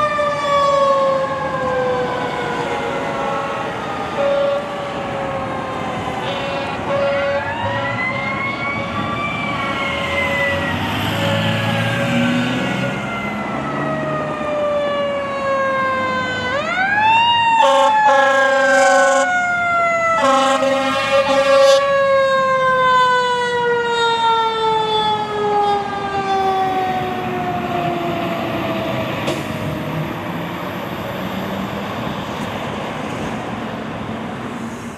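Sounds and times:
fire truck siren wailing: 0:00.0 - 0:34.9
long horn blasts: 0:06.2 - 0:08.4, 0:17.6 - 0:19.3, 0:20.2 - 0:21.9.

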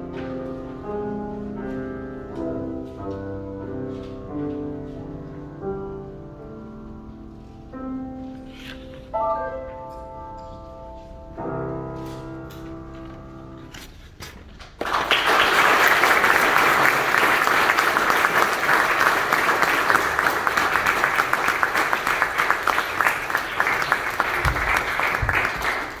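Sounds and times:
piano chord: 0:00.0 - 0:13.8
audience applause: 0:14.8 - 0:26.0.

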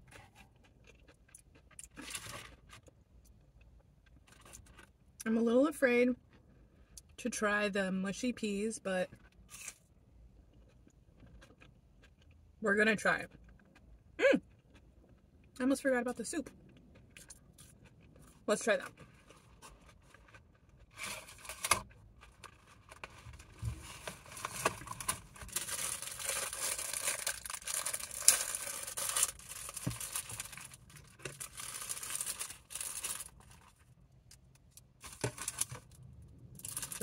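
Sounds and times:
cellophane packet crinkling: 0:21.0 - 0:36.0, 0:36.6 - 0:37.0.

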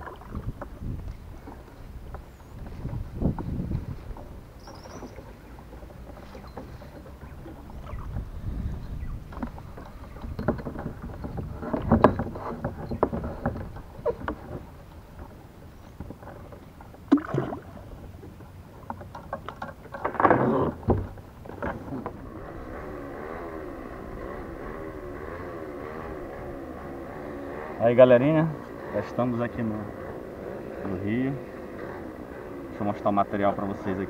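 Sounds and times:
paddle knocking against hull: 0:00.0 - 0:22.7
distant motor droning: 0:00.0 - 0:34.0
paddle strokes splashing water: 0:00.0 - 0:34.0.

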